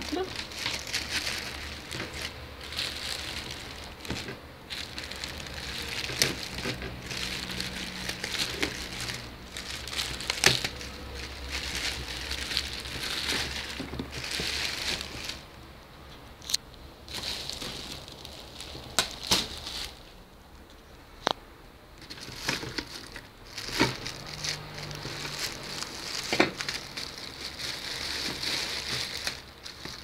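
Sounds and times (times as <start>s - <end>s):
plastic wrapping crinkling: 0.0s - 15.7s, 16.4s - 20.2s, 22.0s - 30.0s.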